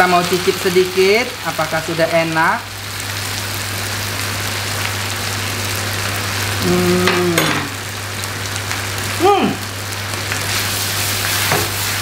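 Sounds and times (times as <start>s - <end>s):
meat sizzling in a pan: 0.0s - 12.0s
person humming: 6.5s - 7.8s, 9.2s - 9.6s.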